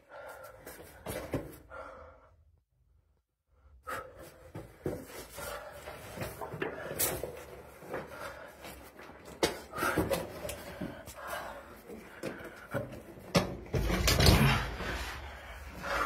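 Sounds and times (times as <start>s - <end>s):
footsteps on stony floor: 4.3s - 13.3s.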